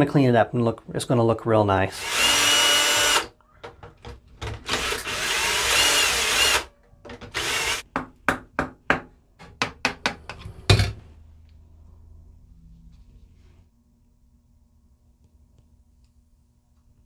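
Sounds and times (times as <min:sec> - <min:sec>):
power drill whining: 0:01.9 - 0:03.3, 0:04.6 - 0:07.8.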